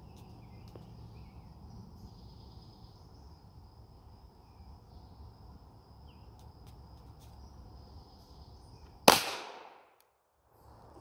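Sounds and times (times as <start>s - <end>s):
pistol shot with echo: 9.0s - 10.0s.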